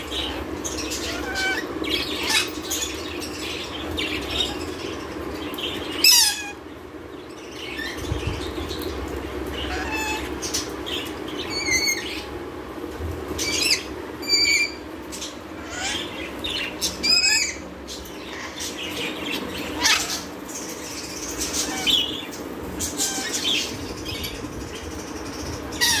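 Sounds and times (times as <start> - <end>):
steady low hum: 0.0 - 26.0
lorikeets giving shrill calls: 0.9 - 3.0, 6.0 - 6.6, 9.7 - 10.6, 25.8 - 26.0.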